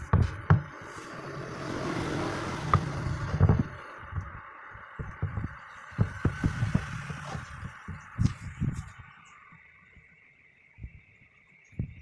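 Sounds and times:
faint steady hiss: 0.0 - 12.0
soft low thumps and knocks: 2.6 - 9.2, 11.7 - 12.0.

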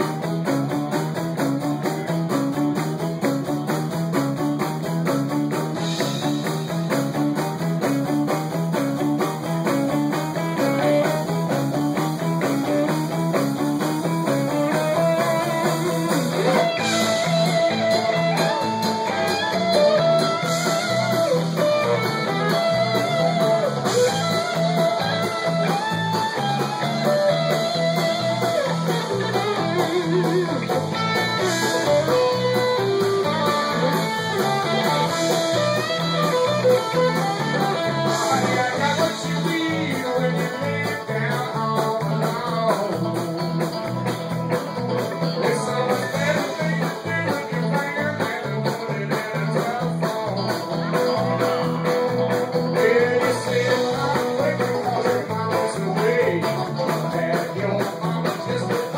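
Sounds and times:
bass guitar: 0.0 - 58.9
drum kit: 0.0 - 58.9
electric guitar: 0.0 - 58.9.

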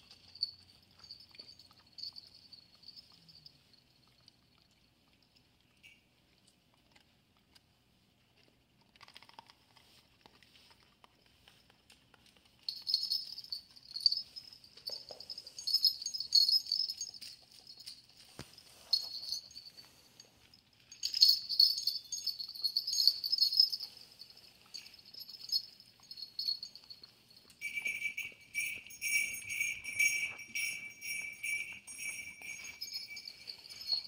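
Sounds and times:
dog collar bells jingling: 0.0 - 4.3, 5.7 - 6.1, 11.4 - 34.0.

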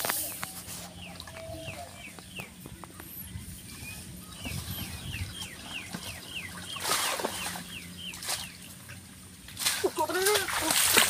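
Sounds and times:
bird chirping: 0.1 - 9.1
water splashing off net: 6.7 - 8.5, 9.5 - 11.0.

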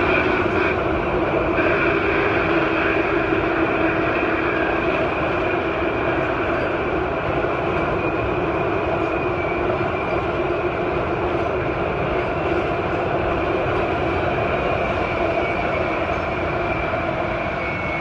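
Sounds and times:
steady whine: 0.0 - 12.4
train cars rumbling on rails: 0.0 - 18.0.

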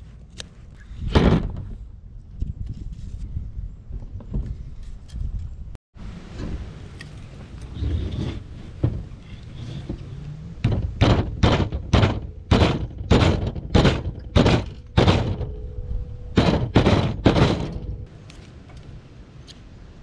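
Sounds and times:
rubber mallet knocking wood: 10.6 - 15.5.

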